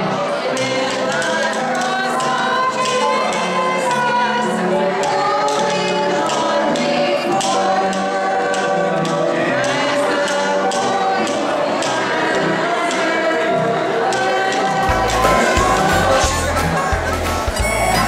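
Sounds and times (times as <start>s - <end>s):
voices singing together: 0.0s - 18.0s
clicking beat: 14.0s - 18.0s.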